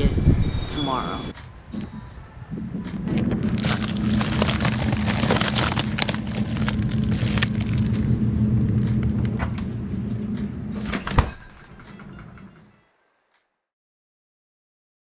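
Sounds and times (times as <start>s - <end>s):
freezer low hum: 3.2s - 12.3s
plastic bags rustling in freezer: 3.5s - 8.2s
freezer door shutting: 3.7s - 7.9s, 10.8s - 12.5s.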